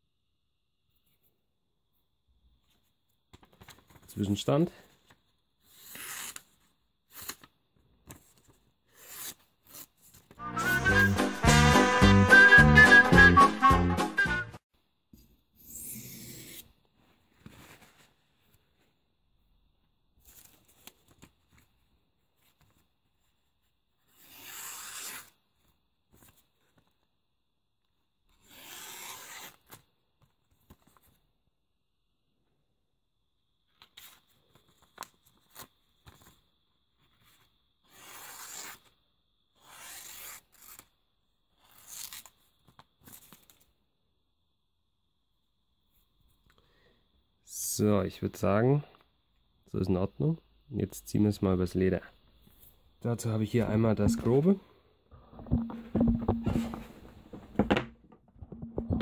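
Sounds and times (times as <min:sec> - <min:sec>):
soft paper rustles: 0:02.5 - 0:10.4, 0:16.8 - 0:19.1, 0:20.2 - 0:24.0, 0:30.1 - 0:31.4, 0:33.7 - 0:37.6.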